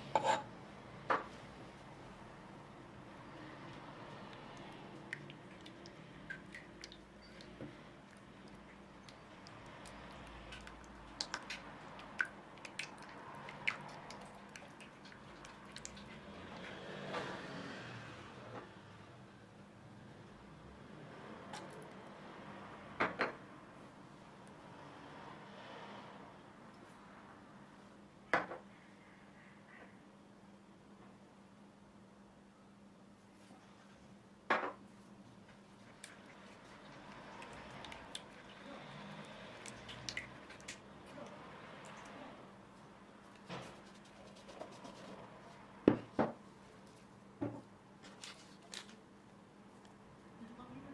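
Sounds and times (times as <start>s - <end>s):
spatula stirring wet mixture: 3.2s - 17.1s, 35.5s - 45.7s.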